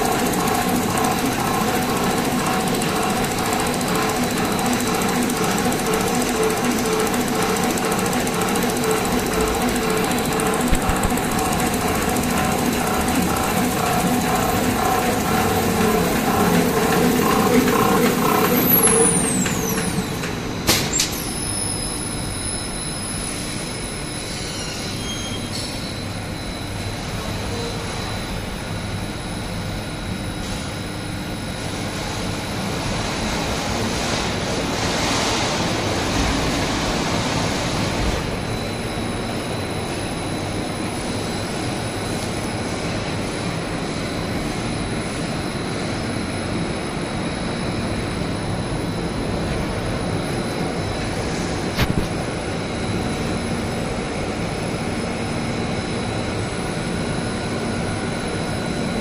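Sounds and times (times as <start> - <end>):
machine rollers running: 0.0 - 28.6
high machine whine: 0.0 - 59.0.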